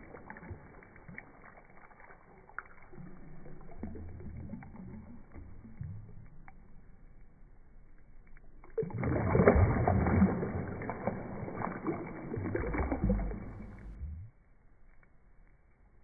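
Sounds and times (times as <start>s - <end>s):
bubbles in water: 0.0s - 6.6s, 8.6s - 14.3s
water splashing and sloshing: 0.0s - 14.4s.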